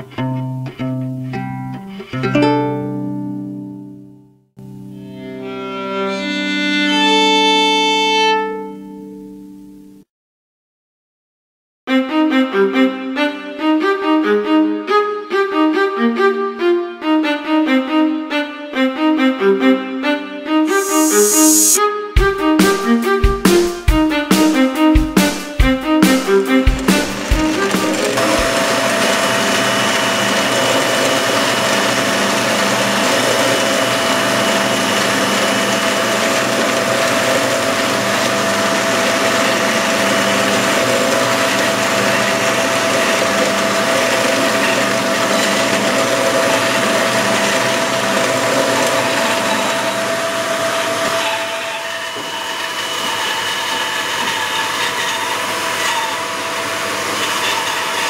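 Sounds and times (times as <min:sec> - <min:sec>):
bandsaw cutting wooden board: 0:20.7 - 0:21.8, 0:26.0 - 0:58.0
workshop machine motor whine: 0:20.7 - 0:21.8, 0:27.2 - 0:51.0.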